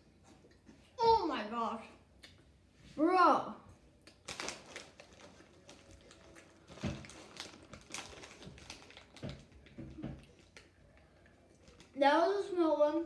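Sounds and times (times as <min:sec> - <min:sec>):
snack bag crinkling: 0:04.1 - 0:12.0.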